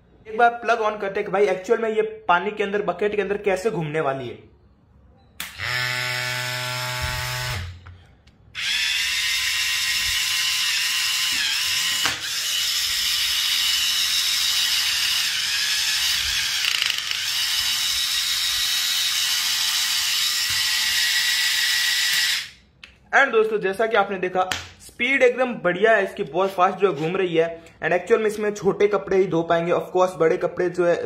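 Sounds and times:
low buzz: 0:05.4 - 0:07.9
electric motor whining: 0:05.5 - 0:07.8, 0:08.6 - 0:22.5.

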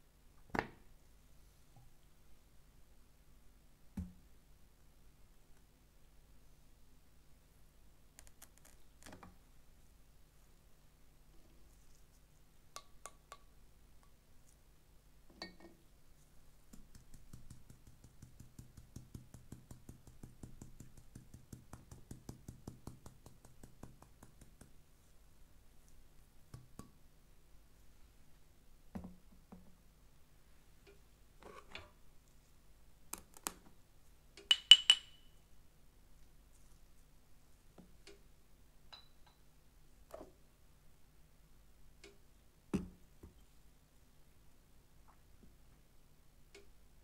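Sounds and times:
spice shaker tapping: 0:16.7 - 0:24.8, 0:34.5 - 0:35.3
tableware clinking: 0:34.5 - 0:35.3, 0:38.9 - 0:39.4.

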